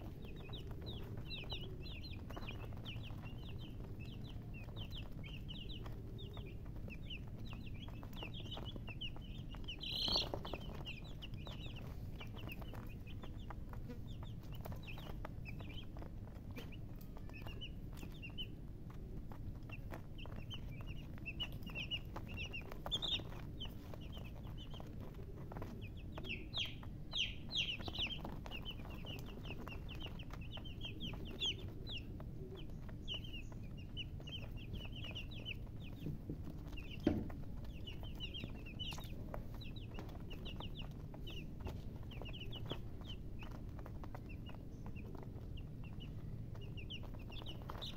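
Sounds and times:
chicks peeping: 0.0 - 47.9
low steady rumble: 0.0 - 47.9.

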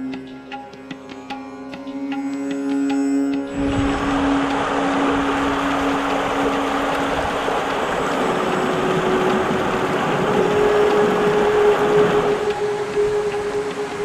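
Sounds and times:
creek rushing over rocks: 3.5 - 14.0.

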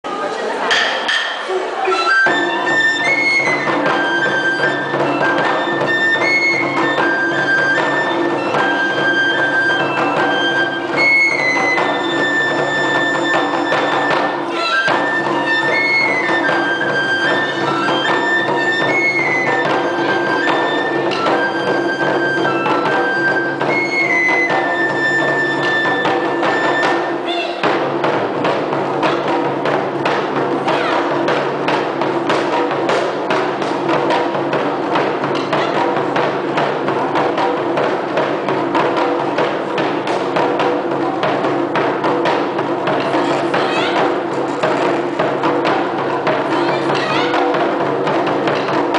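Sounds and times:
drum strikes: 0.6 - 48.9
bamboo flute melody: 1.4 - 27.7, 35.0 - 36.3, 45.7 - 47.7.

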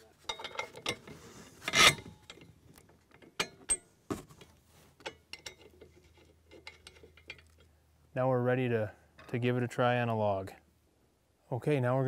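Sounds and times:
metal parts clinking: 0.2 - 1.1, 5.0 - 7.7.

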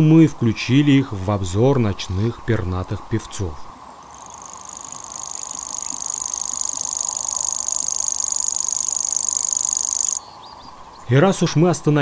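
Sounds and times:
high-pitched bird reel: 4.4 - 10.2.

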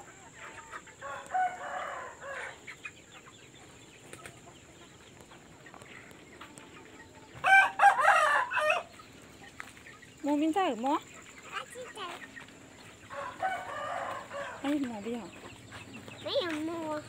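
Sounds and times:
chickens clucking: 0.0 - 17.0
rooster crowing: 1.0 - 2.6, 7.4 - 8.9, 13.1 - 14.7.

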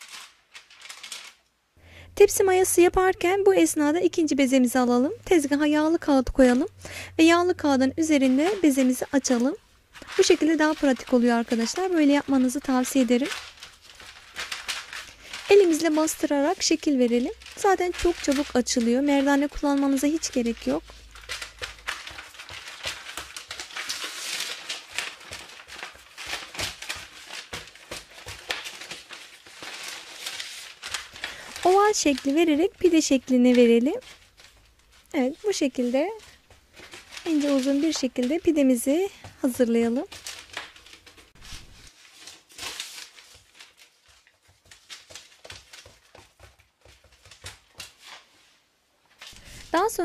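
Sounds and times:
baking paper crinkling: 0.0 - 1.6, 2.2 - 50.0
hands patting dough: 7.6 - 29.8, 44.0 - 48.1.

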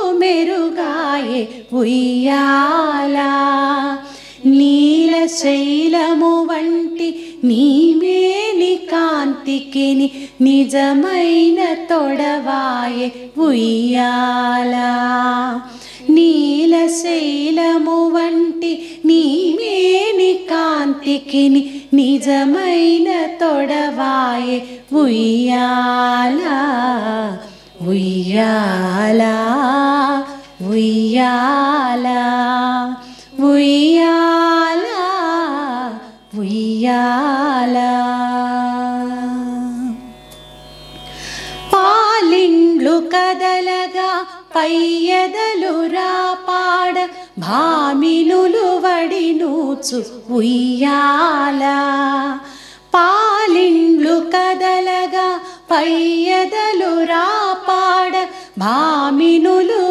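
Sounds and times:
person singing melody: 0.0 - 59.9
singer breaths: 4.0 - 4.5, 10.1 - 10.4, 15.7 - 16.1, 33.0 - 33.4, 41.0 - 41.7, 52.4 - 52.9.

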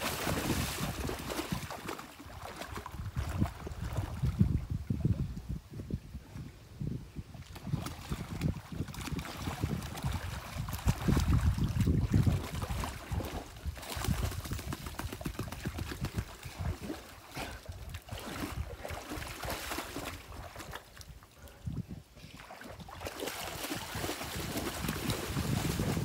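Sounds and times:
dog splashing in water: 0.0 - 4.2, 18.0 - 20.8, 22.4 - 26.0.

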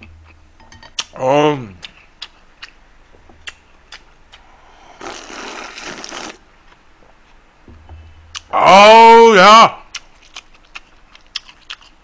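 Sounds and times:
wet chewing clicks: 1.8 - 2.8, 3.4 - 4.4, 9.9 - 12.0
noisy slurping of noodles: 5.0 - 6.4.

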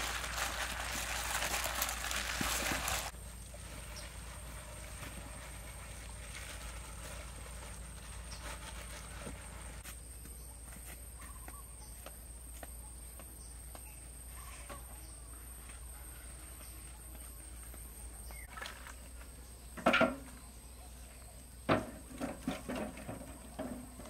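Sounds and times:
wet rustling of battered chicken: 0.0 - 8.4
footsteps: 0.0 - 18.4.

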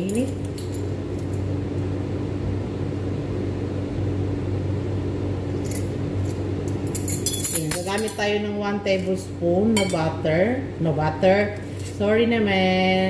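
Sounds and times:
measuring spoons clinking: 0.0 - 0.9, 6.7 - 8.4, 9.8 - 10.1.

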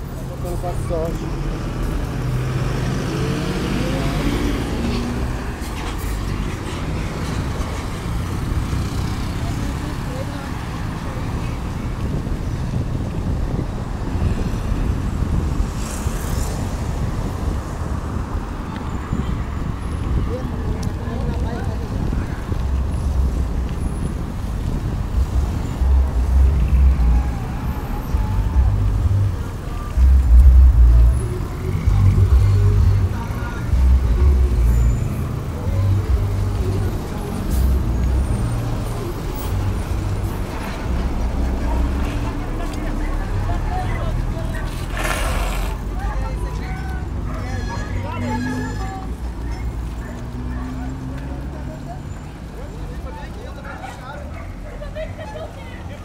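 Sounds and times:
car and bus engines running: 0.0 - 56.0
low road rumble: 0.0 - 56.0
wind buffeting microphone: 11.2 - 32.4.

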